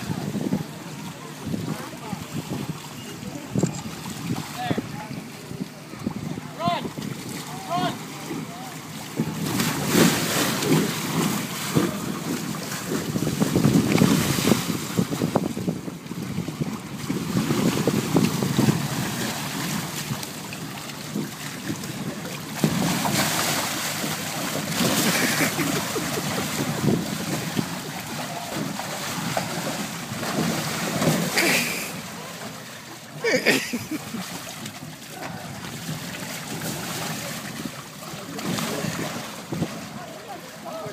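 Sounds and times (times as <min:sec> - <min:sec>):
wind noise on microphone: 0:00.0 - 0:31.4, 0:38.4 - 0:40.0
water sloshing in a pool: 0:00.0 - 0:40.9.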